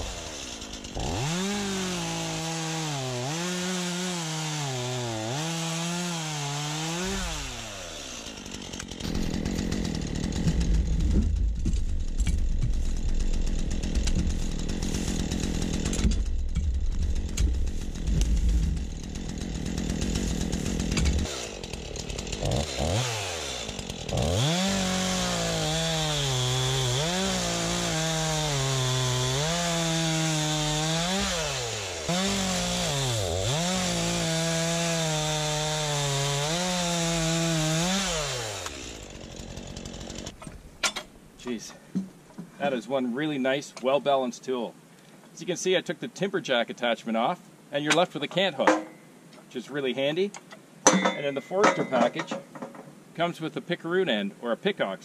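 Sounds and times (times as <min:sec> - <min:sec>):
chainsaw cutting log: 0:00.0 - 0:41.2.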